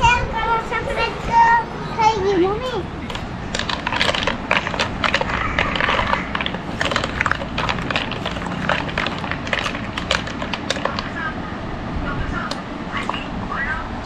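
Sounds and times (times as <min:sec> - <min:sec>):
spoon and ice clinking in pot: 0:03.1 - 0:11.1.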